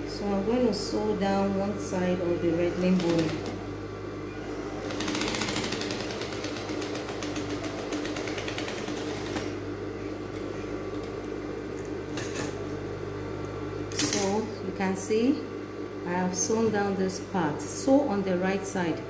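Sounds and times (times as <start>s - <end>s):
sewing machine motor hum: 1.8s - 11.5s.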